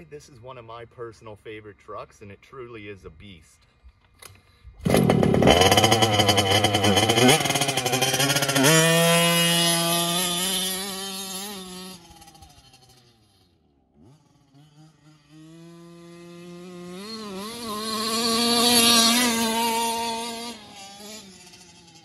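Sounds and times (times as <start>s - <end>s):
rc truck engine revving: 4.8s - 22.0s.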